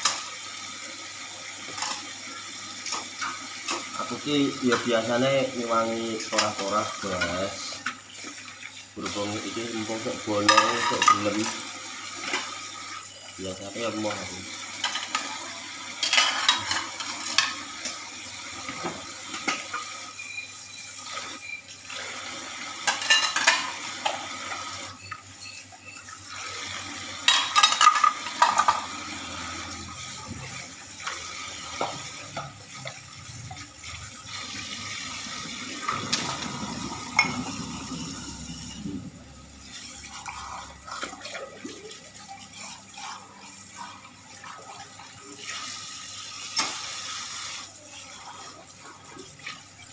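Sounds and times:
plates and glasses clattering: 0:10.4 - 0:11.5, 0:16.0 - 0:17.6, 0:22.8 - 0:24.3, 0:27.2 - 0:29.0, 0:35.8 - 0:37.7.

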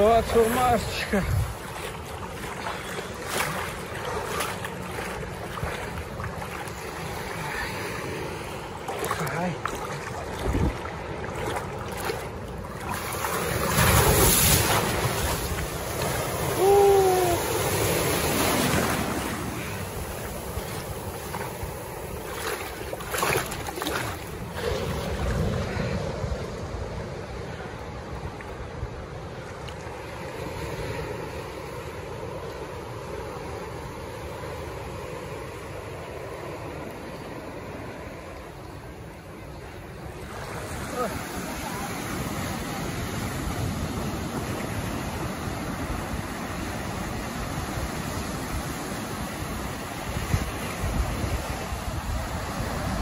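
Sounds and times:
wind buffeting microphone: 0:00.0 - 0:07.2, 0:09.6 - 0:29.1
sea water rushing: 0:00.0 - 0:53.0.

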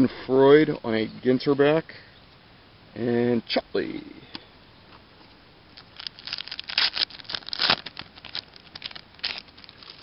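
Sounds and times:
foil wrapper tearing and crinkling: 0:05.8 - 0:10.0.

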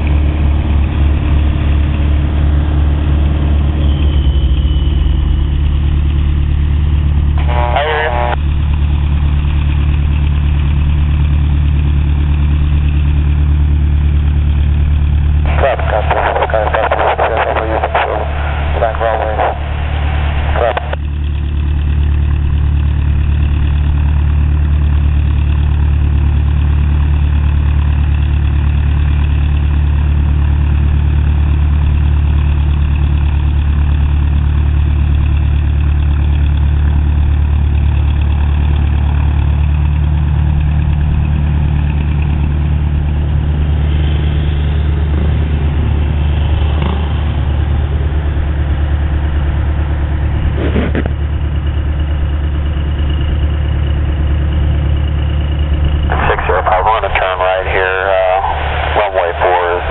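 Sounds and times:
propeller plane engine idling: 0:00.0 - 0:59.9.

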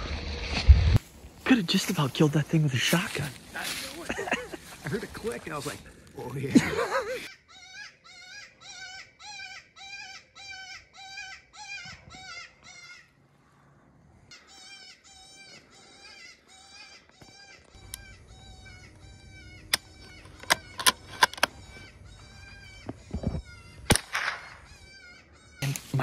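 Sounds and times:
high-pitched distress cry call: 0:14.4 - 0:25.6
rifle metallic clicks: 0:19.7 - 0:21.5.

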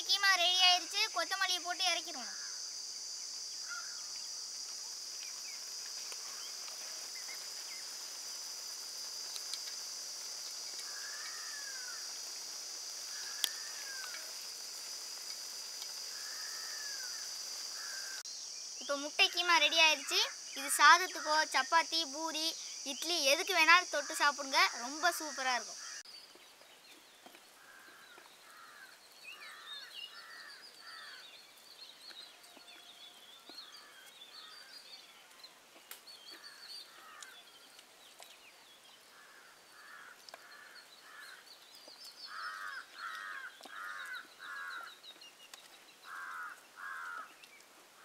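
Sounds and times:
small birds chirping: 0:00.0 - 0:48.0
crows cawing: 0:02.2 - 0:02.6, 0:03.6 - 0:04.1, 0:06.2 - 0:06.6, 0:10.8 - 0:12.2, 0:13.1 - 0:14.4, 0:16.0 - 0:18.2, 0:24.0 - 0:26.0, 0:27.6 - 0:31.2, 0:36.4 - 0:37.4, 0:39.1 - 0:41.5, 0:42.3 - 0:45.0, 0:46.0 - 0:47.4.

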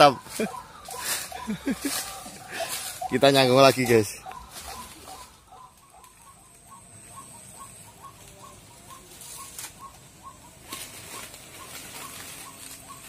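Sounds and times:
rustling: 0:00.0 - 0:13.0.

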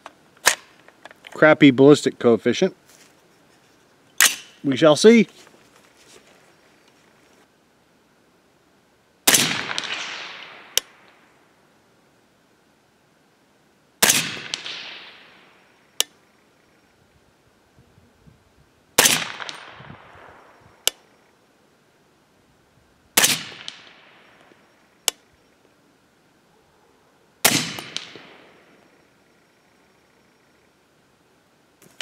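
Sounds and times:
suppressed rifle shots with echo: 0:09.2 - 0:11.3, 0:14.0 - 0:15.9, 0:19.0 - 0:21.1, 0:23.2 - 0:24.9, 0:27.4 - 0:29.0.

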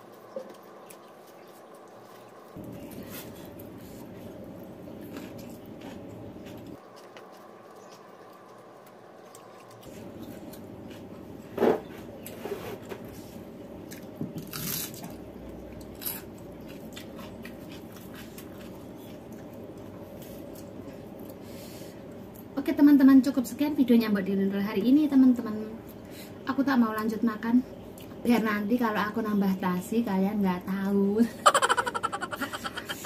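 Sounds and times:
steady background hum: 0:00.0 - 0:33.0
person chewing food: 0:00.2 - 0:11.4, 0:15.6 - 0:21.4, 0:31.5 - 0:33.0.

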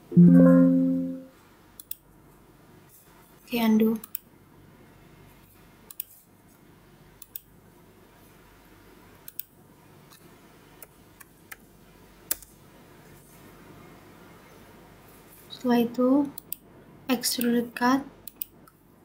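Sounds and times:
faint room hum: 0:00.0 - 0:19.0
computer mouse clicks: 0:01.8 - 0:02.0, 0:05.9 - 0:06.1, 0:07.2 - 0:07.5, 0:09.3 - 0:09.5, 0:16.4 - 0:16.6, 0:18.2 - 0:18.6.

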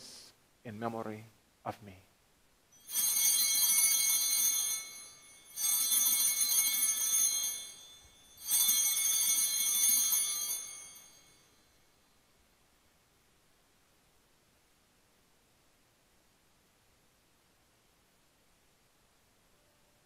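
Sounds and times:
altar bells jingling: 0:02.8 - 0:11.7.

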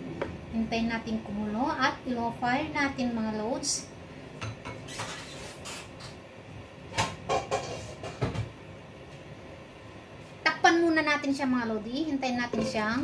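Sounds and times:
cookware clattering: 0:12.5 - 0:13.0.

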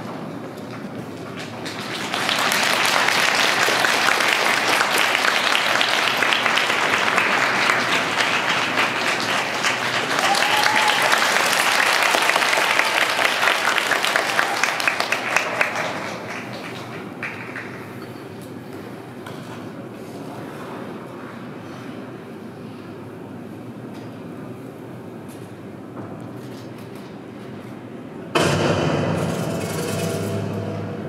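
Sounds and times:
audience applauding: 0:01.3 - 0:18.0.

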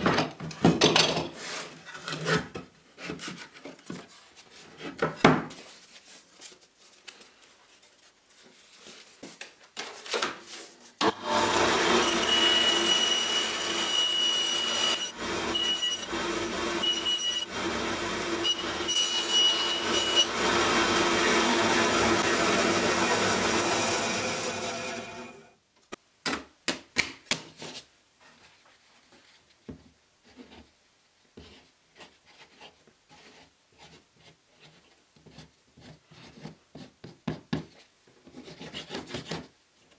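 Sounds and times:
bandsaw cutting wood: 0:11.0 - 0:25.5.

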